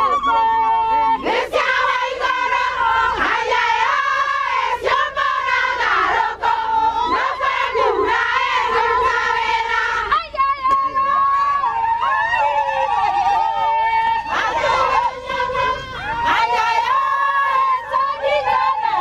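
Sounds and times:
women singing together: 0.0 - 19.0.

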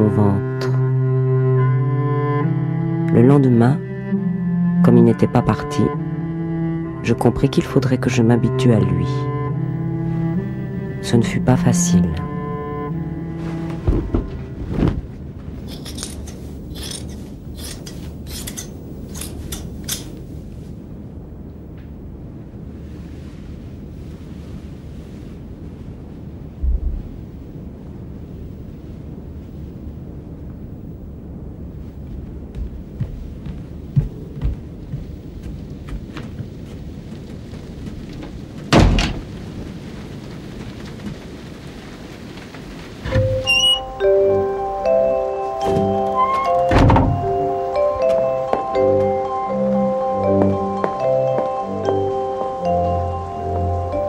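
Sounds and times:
low steady rumble: 0.0 - 44.8
steady rain: 0.0 - 54.0
crisp scraping strokes: 13.2 - 20.8
dull thump: 13.6 - 15.2, 26.6 - 27.2, 46.7 - 47.2.

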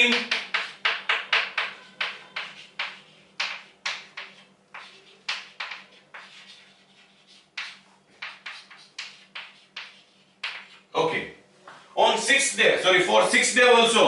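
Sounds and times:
chalk writing on blackboard: 0.0 - 10.9.

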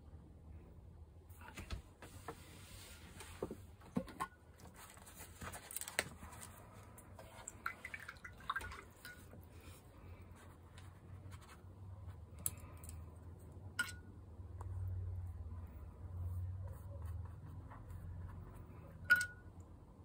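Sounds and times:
paper rustling: 4.6 - 6.9.

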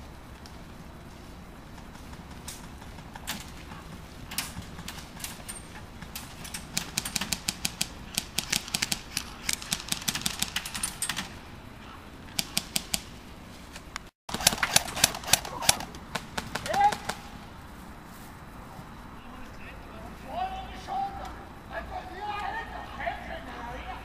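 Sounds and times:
airsoft guns firing: 1.9 - 11.4, 12.3 - 13.2, 14.3 - 17.4.

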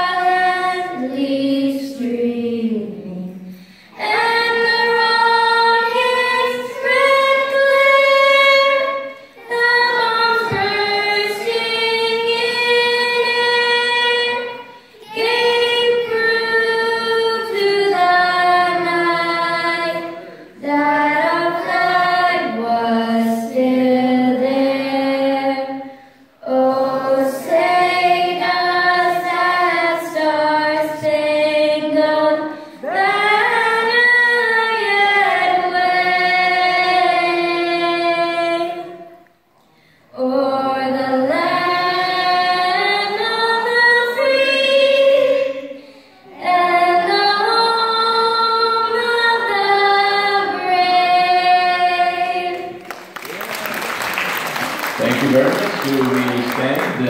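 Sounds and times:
girl singing into microphone: 0.0 - 39.2, 39.8 - 52.7.

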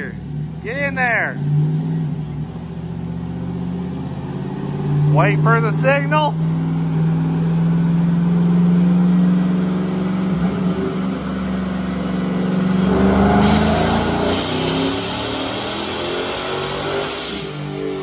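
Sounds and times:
engine revving under load: 0.0 - 18.0
loud gas hiss: 13.2 - 17.7.

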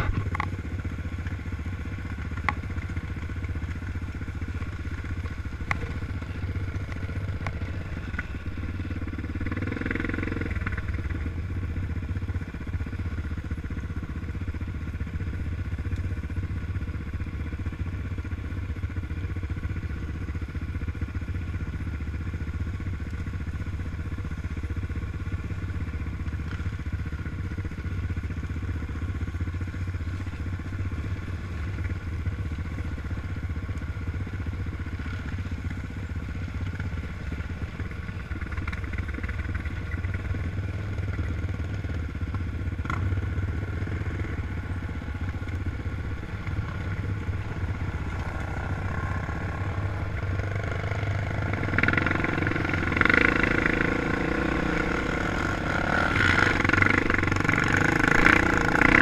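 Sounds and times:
quad bike engine running: 0.0 - 59.0.

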